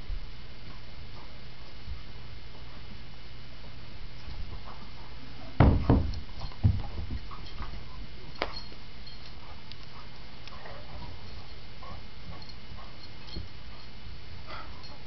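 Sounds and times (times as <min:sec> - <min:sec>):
low room hum: 0:00.0 - 0:15.0
bodies thumping against floor: 0:05.6 - 0:07.4.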